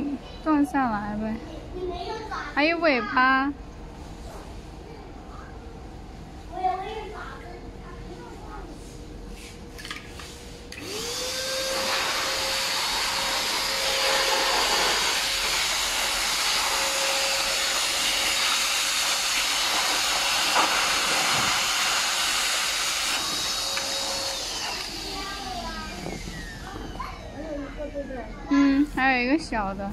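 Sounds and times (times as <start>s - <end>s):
electric air pump whining: 10.1s - 29.3s.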